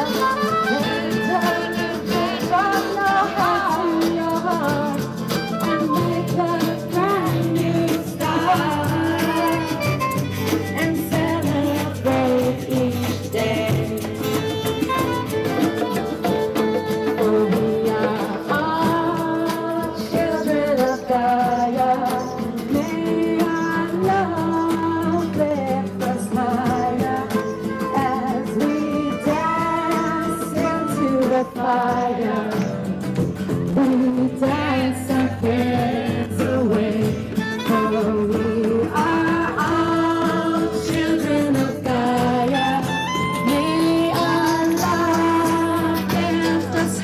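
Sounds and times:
person singing: 0.0 - 32.9, 33.7 - 47.0
instrumental accompaniment: 0.0 - 47.0.

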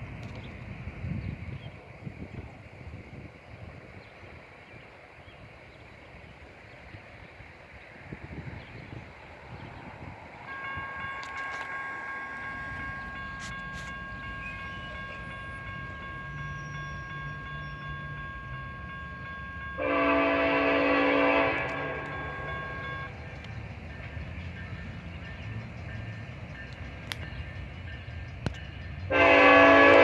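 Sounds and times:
crossing warning bell ringing: 8.4 - 30.0
train horn blast: 10.5 - 15.5, 19.6 - 23.1, 29.1 - 30.0.

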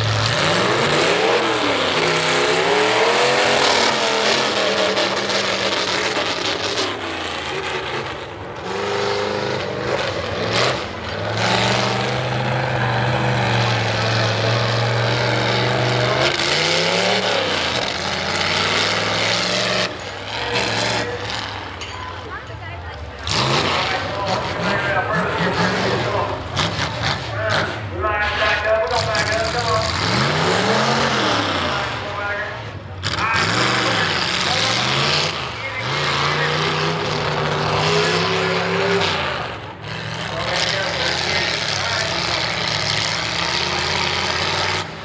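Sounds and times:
truck engine revving through gears: 0.0 - 45.0.

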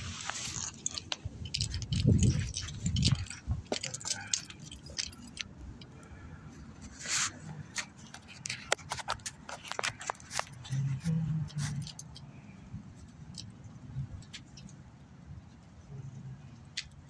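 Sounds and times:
phone handling clicks and rattles: 0.6 - 6.1, 7.5 - 10.8.

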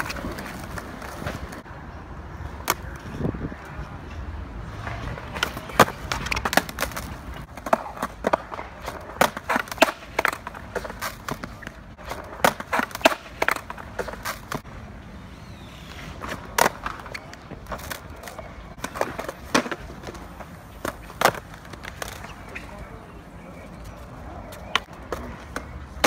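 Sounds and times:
skateboard clacking on concrete: 0.0 - 1.7, 4.8 - 14.7, 16.2 - 26.0.

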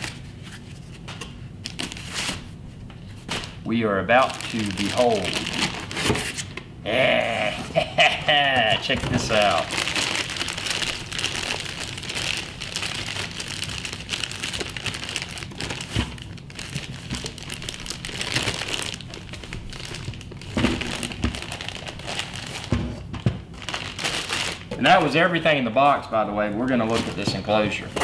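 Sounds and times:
plastic bag crinkling: 3.4 - 6.1, 8.7 - 22.7, 23.5 - 25.2.

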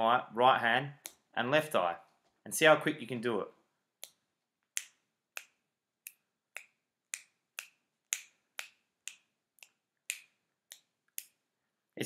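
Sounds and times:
finger snaps: 4.0 - 11.4.

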